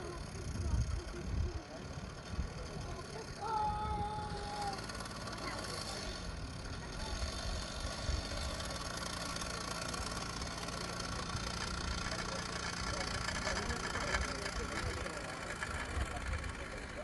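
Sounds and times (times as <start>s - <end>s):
people talking: 0.0s - 7.6s, 10.4s - 17.0s.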